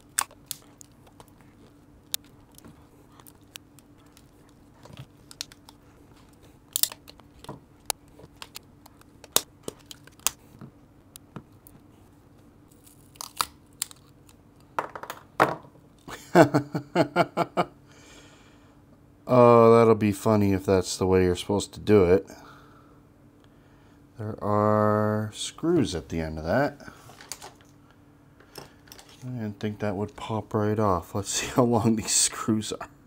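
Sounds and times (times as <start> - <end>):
side cutters cracking plastic: 0.0 - 1.4, 6.7 - 10.4.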